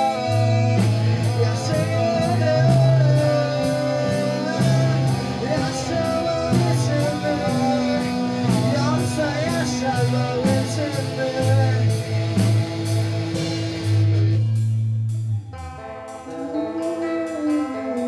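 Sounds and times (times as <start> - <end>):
person singing: 0.0 - 12.6, 16.3 - 18.0
bass guitar: 0.0 - 18.0
drums with cymbal strikes: 0.0 - 18.0
electric guitars: 0.0 - 18.0.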